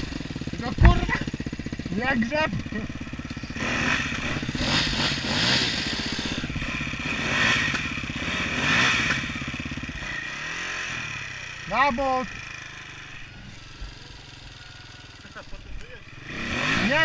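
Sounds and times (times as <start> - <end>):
dirt bike engine idling: 0.0 - 17.0
dirt bike revving: 0.0 - 17.0.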